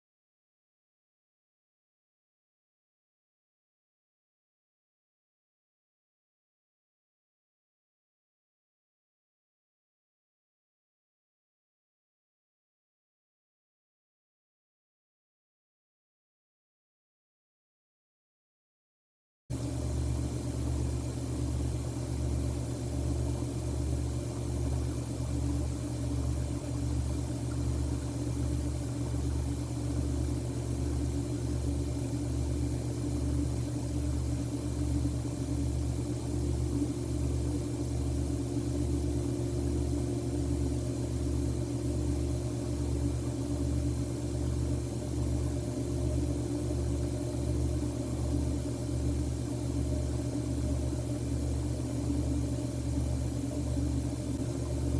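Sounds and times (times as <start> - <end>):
low throbbing mechanical hum: 19.5 - 54.9.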